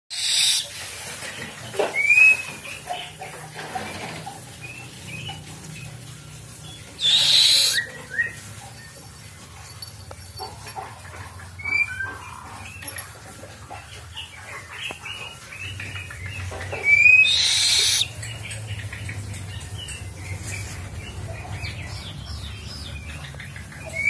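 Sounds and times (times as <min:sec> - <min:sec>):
owl chick hissing: 0:00.1 - 0:00.8, 0:07.0 - 0:07.9, 0:17.0 - 0:18.1.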